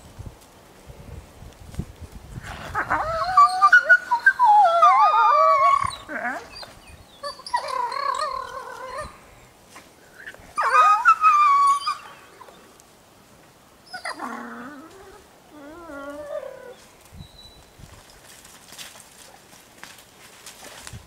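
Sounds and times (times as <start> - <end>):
wolves whining and yelping: 2.5 - 9.3, 10.2 - 12.7, 13.9 - 17.5.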